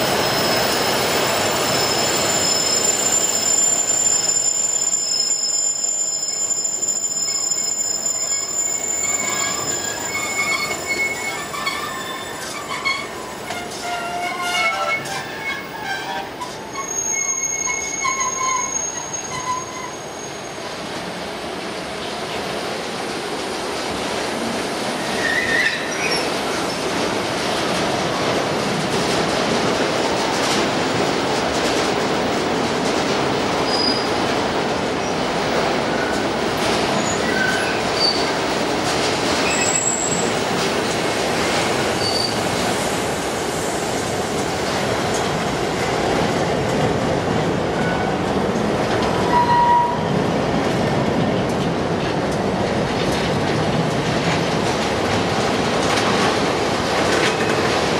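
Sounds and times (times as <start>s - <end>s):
high wheel squeals: 0.0s - 20.6s, 37.0s - 38.3s, 39.4s - 40.4s, 42.0s - 42.4s.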